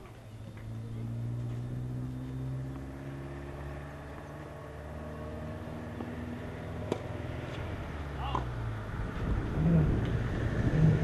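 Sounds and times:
engine humming: 0.0s - 11.0s
racket striking ball: 6.8s - 7.2s.

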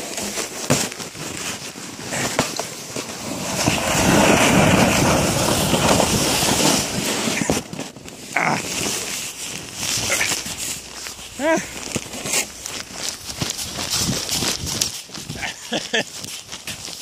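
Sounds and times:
sled scraping over snow: 0.0s - 17.0s
sled knocks: 2.1s - 7.9s.

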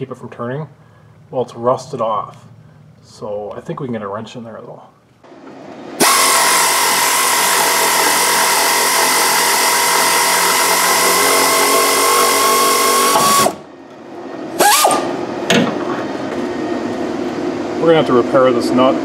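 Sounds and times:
power tool whining: 6.0s - 13.7s, 14.5s - 15.2s.

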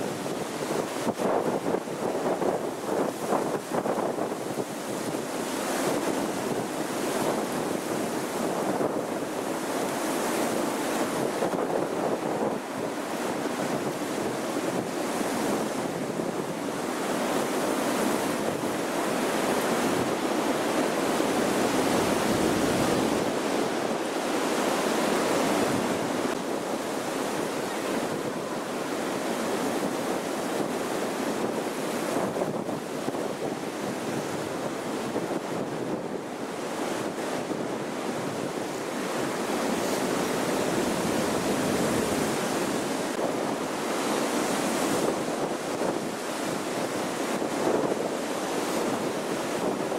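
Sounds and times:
strong gusty wind: 0.0s - 49.9s.

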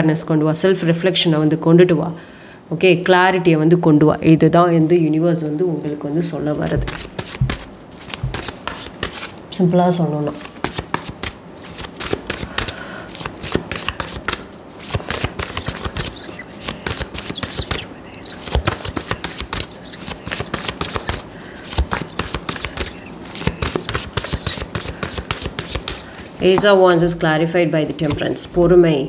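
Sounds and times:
cards being shuffled: 6.5s - 27.2s, 27.9s - 28.5s.

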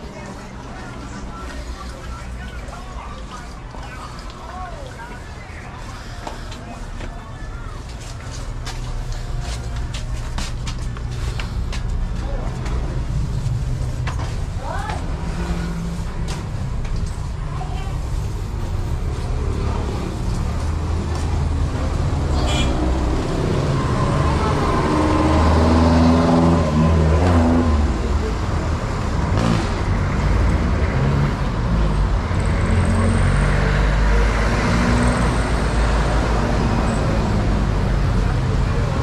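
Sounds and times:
traffic rumble: 0.0s - 39.0s
vehicle engine passing: 18.1s - 39.0s.

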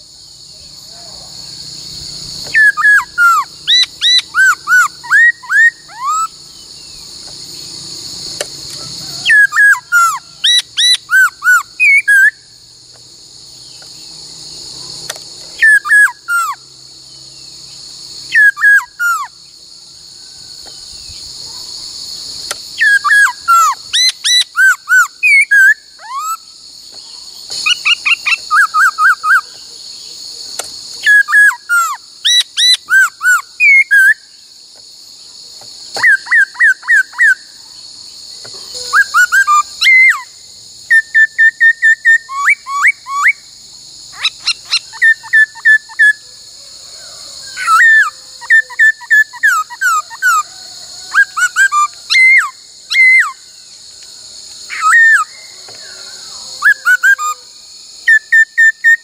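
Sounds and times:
steady high hiss: 0.0s - 36.0s
bird whistling song: 2.4s - 7.1s, 9.1s - 12.6s, 15.5s - 16.6s, 18.2s - 19.4s, 22.8s - 29.6s, 31.0s - 34.3s, 36.0s - 37.4s, 38.8s - 40.3s, 40.9s - 43.4s, 44.2s - 46.2s, 47.5s - 50.4s, 51.1s - 53.4s, 54.7s - 56.0s, 56.6s - 59.0s.

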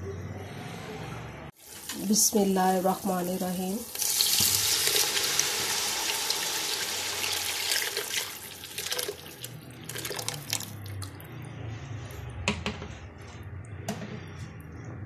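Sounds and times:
liquid pouring into a pot: 3.9s - 11.2s.

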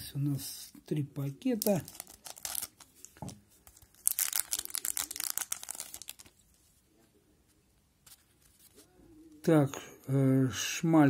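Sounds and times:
wrapper being torn open: 1.6s - 6.5s.

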